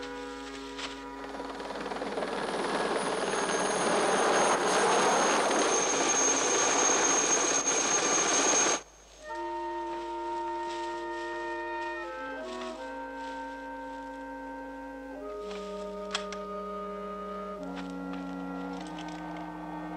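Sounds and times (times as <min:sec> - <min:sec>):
helicopter rotor and engine: 0:00.0 - 0:08.8
high steady whine: 0:00.0 - 0:19.9.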